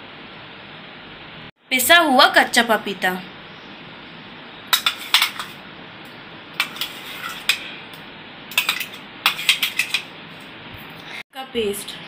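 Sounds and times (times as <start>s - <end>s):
spoon clinking in metal bowl: 4.7s - 5.6s, 8.5s - 10.1s.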